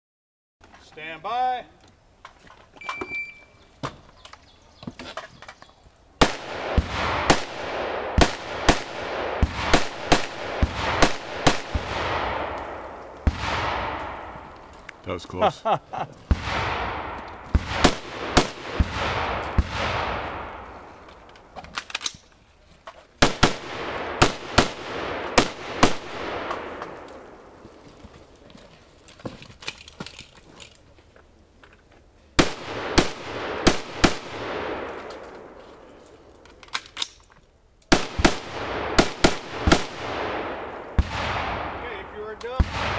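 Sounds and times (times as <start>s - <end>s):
rifle shots with echo: 6.2s - 14.6s, 16.3s - 20.9s, 23.2s - 27.4s, 32.4s - 35.6s, 37.9s - 42.9s.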